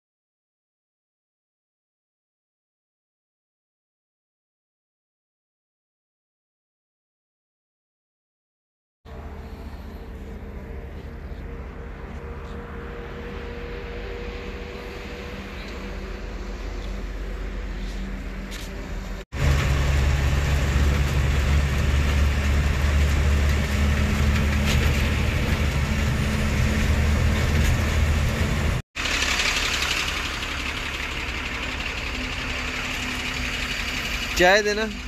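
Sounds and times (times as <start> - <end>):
road noise: 9.1 - 35.0
truck diesel engine drone: 9.1 - 35.0.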